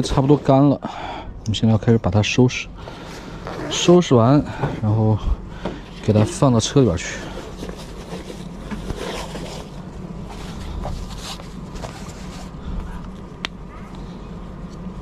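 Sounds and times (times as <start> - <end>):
steady low hum: 0.0 - 15.0
rustling cloth: 7.4 - 12.6.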